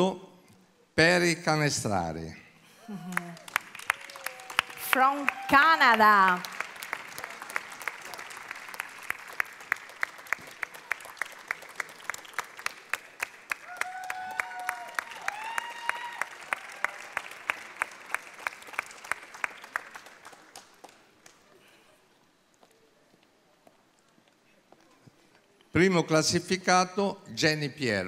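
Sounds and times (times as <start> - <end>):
audience clapping in rhythm: 3.1 - 21.6.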